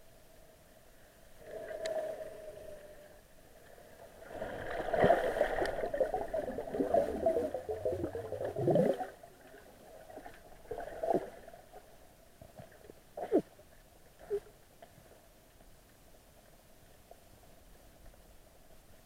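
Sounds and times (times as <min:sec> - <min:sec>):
underwater gurgling and bubbling: 0:04.2 - 0:11.9.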